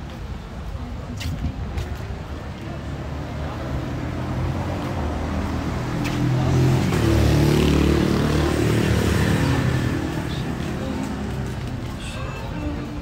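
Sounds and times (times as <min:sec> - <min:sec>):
motor vehicle passing by: 0:03.4 - 0:12.2.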